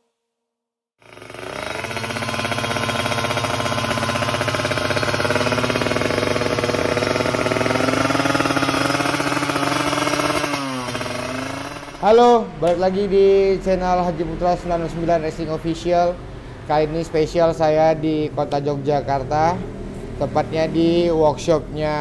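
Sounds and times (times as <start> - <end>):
motorcycle engine revving: 1.0 - 15.9.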